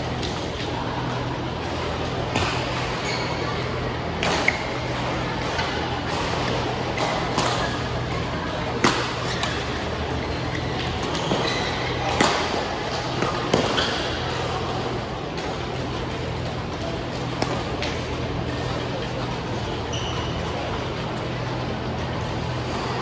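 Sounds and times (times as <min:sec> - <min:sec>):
low hum of large hall: 0:00.0 - 0:23.0
shoes squeaking on court floor: 0:02.6 - 0:03.8, 0:09.2 - 0:12.2, 0:19.4 - 0:21.1.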